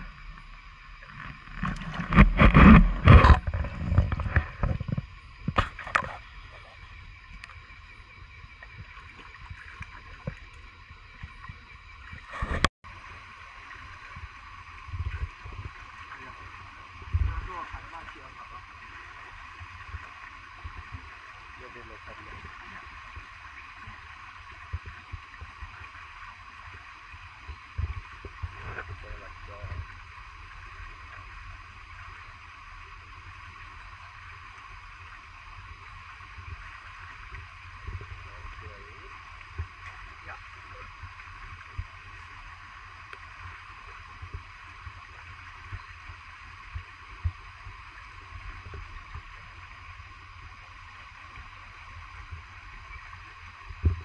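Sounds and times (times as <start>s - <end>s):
rush of noise at microphone: 0.0s - 6.8s
low rumble: 0.0s - 25.8s
running water hiss: 0.0s - 54.0s.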